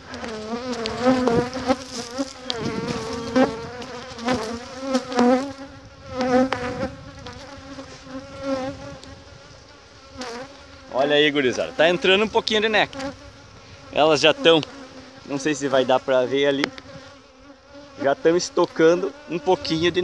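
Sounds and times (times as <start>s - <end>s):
bees buzzing: 0.0s - 20.0s
sharp knocks of hive frames: 6.1s - 7.8s, 16.6s - 17.2s.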